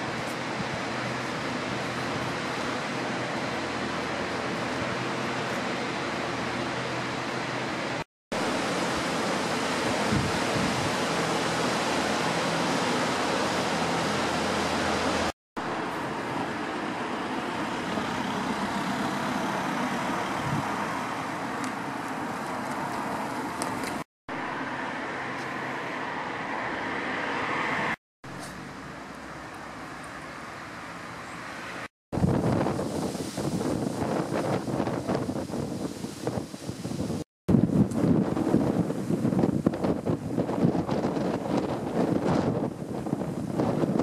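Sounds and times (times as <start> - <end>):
cars passing: 0.0 - 32.3
wind-like rushing: 8.3 - 15.3, 17.6 - 21.2, 32.1 - 44.0.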